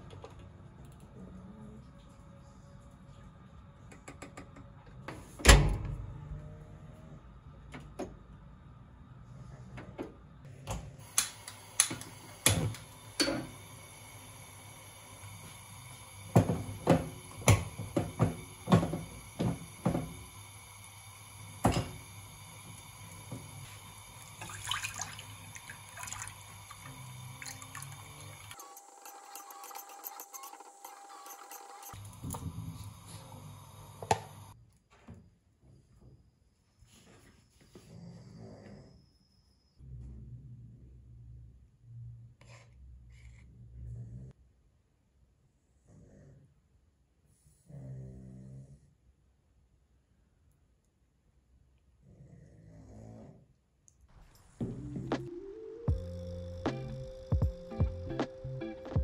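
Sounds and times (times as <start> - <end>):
liquid pouring: 22.6 - 28.6.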